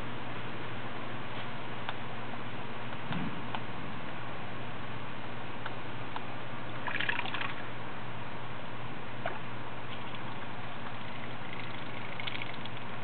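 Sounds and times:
steady hiss and low hum: 0:00.0 - 0:13.0
water drips and clicks: 0:10.1 - 0:12.9
bird splashing in water: 0:11.5 - 0:12.8.

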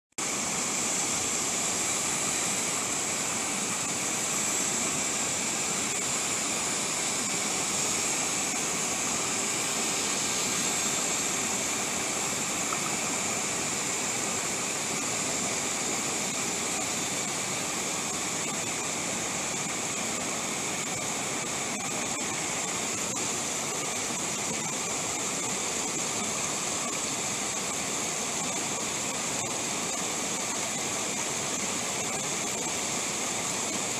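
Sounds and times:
stream rushing over rocks: 0:00.2 - 0:33.9.

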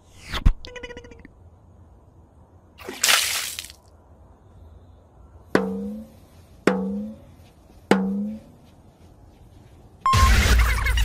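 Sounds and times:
drum-like hits: 0:05.6 - 0:07.3, 0:07.9 - 0:08.6.

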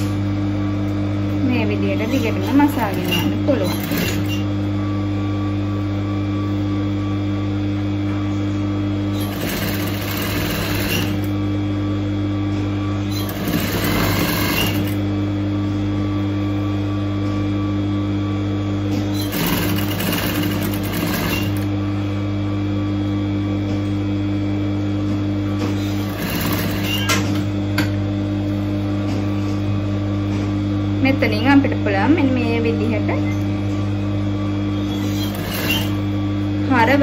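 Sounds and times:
sewing machine running: 0:02.0 - 0:04.4, 0:09.1 - 0:11.4, 0:13.1 - 0:15.0, 0:19.1 - 0:21.7, 0:25.8 - 0:27.3, 0:34.8 - 0:36.2.

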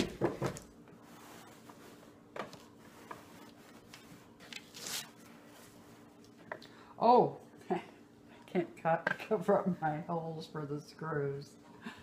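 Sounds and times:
chair knocking on table: 0:00.0 - 0:00.7.

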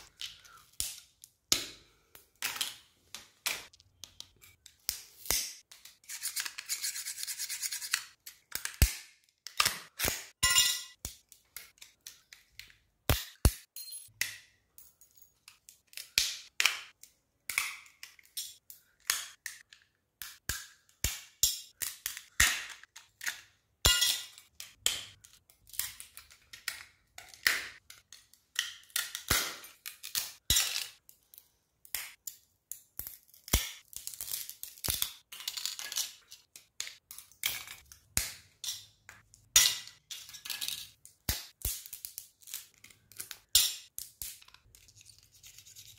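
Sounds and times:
small phone parts clicking and snapping: 0:24.3 - 0:45.4.

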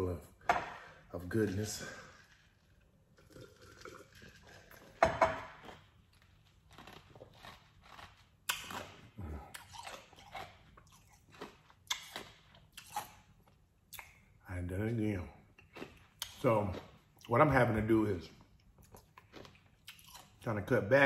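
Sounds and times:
chewing crunches: 0:03.2 - 0:14.3, 0:15.5 - 0:17.4, 0:18.4 - 0:20.5.

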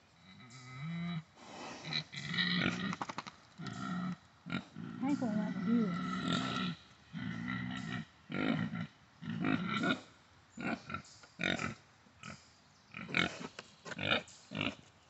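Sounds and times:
pig grunting: 0:00.2 - 0:03.0, 0:03.6 - 0:14.8.

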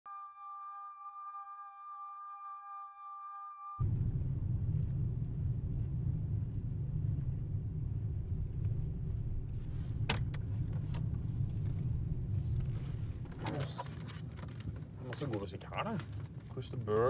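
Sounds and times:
car road rumble: 0:03.8 - 0:17.0.

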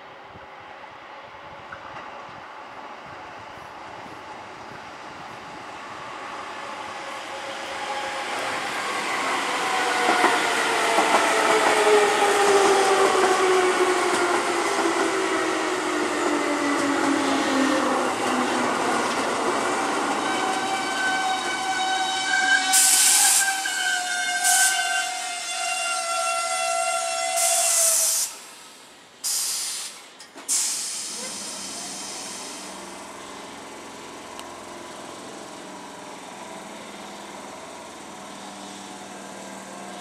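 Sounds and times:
high brake squeal: 0:25.8 - 0:28.4
air hissing: 0:27.4 - 0:32.8
train traction motors humming: 0:30.0 - 0:40.0.

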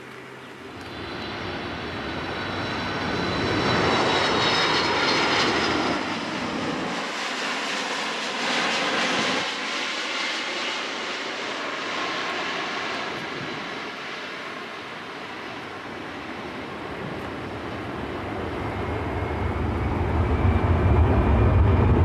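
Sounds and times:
jet engines roaring overhead: 0:00.0 - 0:22.0.

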